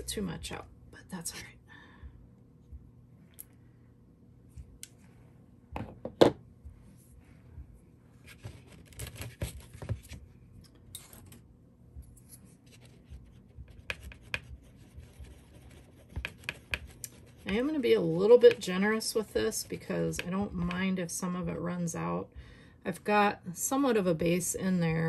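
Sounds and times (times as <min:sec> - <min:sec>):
stir stick scraping and tapping: 0:13.7 - 0:18.8, 0:19.8 - 0:20.9.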